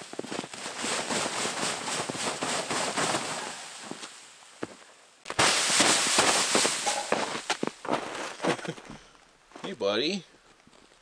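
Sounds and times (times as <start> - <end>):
snow sliding down tent fabric: 0.0 - 4.7, 5.3 - 8.9
rough rush of snow: 0.0 - 9.0.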